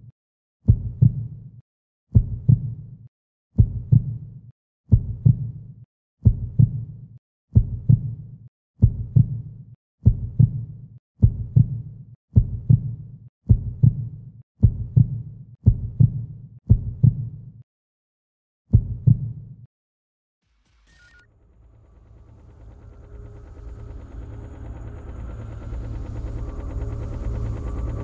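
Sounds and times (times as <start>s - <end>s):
low double thump like heartbeat: 0.7s - 1.3s, 2.1s - 2.8s, 3.6s - 4.2s, 4.9s - 5.5s, 6.2s - 6.8s, 7.5s - 8.1s, 8.8s - 9.4s, 10.0s - 11.8s, 12.4s - 17.3s, 18.7s - 19.3s.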